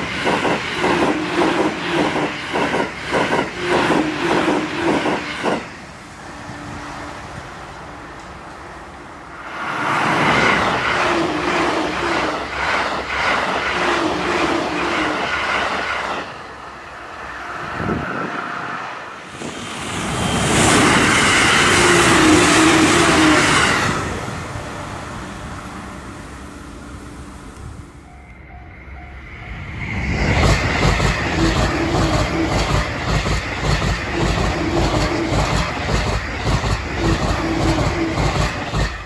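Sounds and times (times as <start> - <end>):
electric trains passing at high speed: 0.0 - 39.0
wheel-on-rail rhythmic clatter: 30.3 - 39.0.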